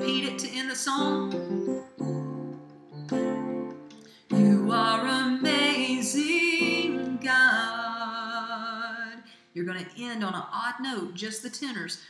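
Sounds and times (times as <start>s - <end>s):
woman singing with vibrato: 0.0s - 1.4s, 4.3s - 9.3s
keyboard chords: 0.0s - 7.4s.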